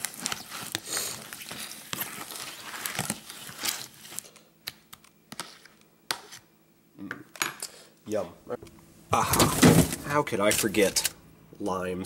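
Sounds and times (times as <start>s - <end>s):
pasta stirred in plastic container: 0.0s - 4.3s.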